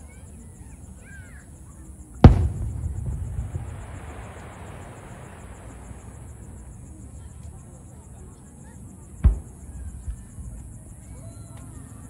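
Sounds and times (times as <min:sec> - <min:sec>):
crackling hiss: 0:01.9 - 0:11.8
firework shell bang: 0:02.2 - 0:04.7, 0:09.2 - 0:09.7
rumbling echo: 0:02.2 - 0:06.4.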